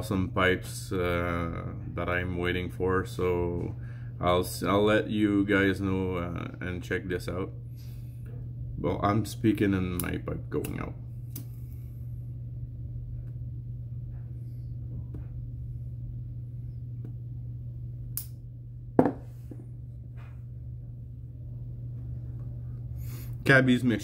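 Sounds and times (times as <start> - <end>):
steady low hum: 0.0 - 24.0
lighter clicks: 18.1 - 18.4
knock: 19.0 - 19.2.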